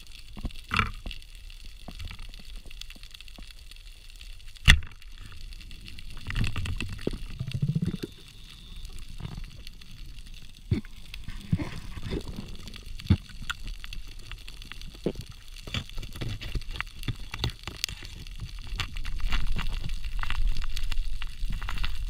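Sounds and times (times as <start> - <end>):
underwater hiss: 6.9 - 13.4.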